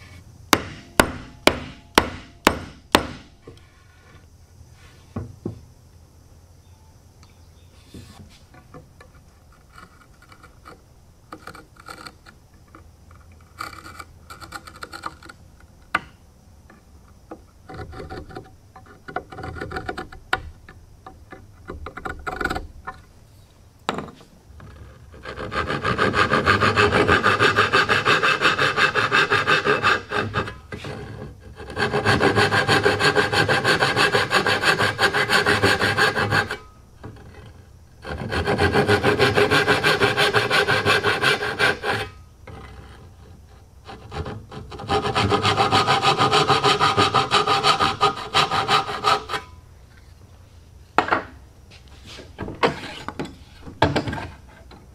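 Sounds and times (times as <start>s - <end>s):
hand saw cutting wood: 24.8s - 36.6s, 38.0s - 43.1s, 43.8s - 49.5s.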